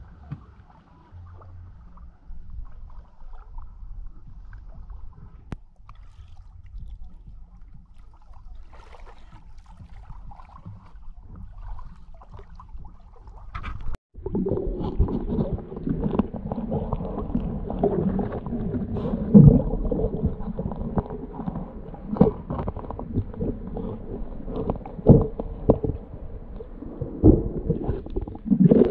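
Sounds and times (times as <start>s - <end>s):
water sloshing: 0.0s - 28.9s
underwater digging in sand: 13.5s - 28.9s.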